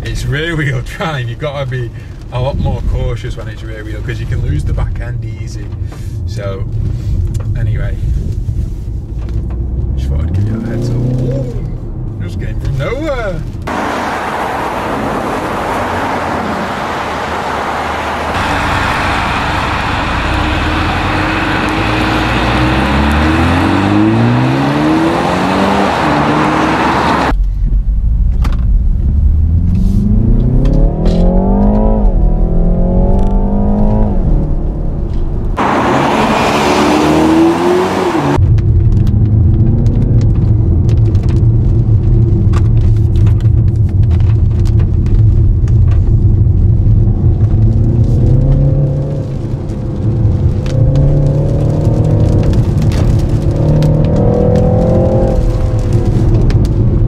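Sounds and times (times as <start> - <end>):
car engine accelerating: 9.0 - 57.0
tyre hiss on wet road: 13.7 - 24.6.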